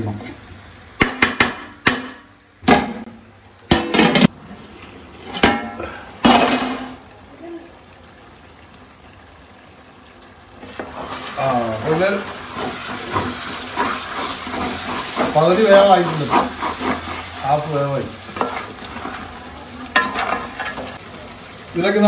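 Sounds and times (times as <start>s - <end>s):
curry hissing while cooking: 4.2s - 22.0s
spatula scraping metal pot: 10.7s - 17.7s.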